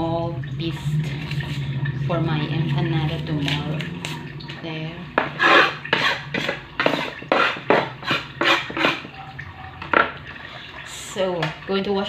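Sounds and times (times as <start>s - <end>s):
knife and dishes knocking and scraping: 5.2s - 9.2s.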